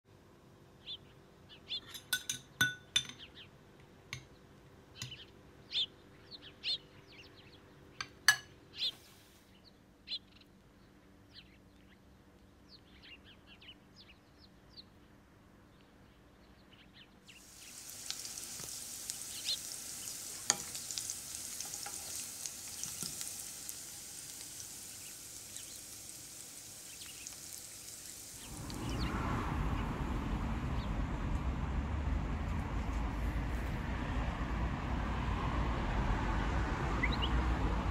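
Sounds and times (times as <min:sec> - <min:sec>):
low noise: 0:03.8 - 0:37.9
vegetables sizzling in a pan: 0:17.4 - 0:29.3.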